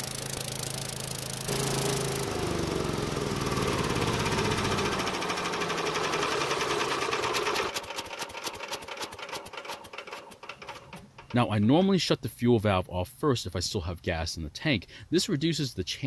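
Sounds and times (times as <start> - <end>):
small engine running and shutting down: 0.0 - 10.5.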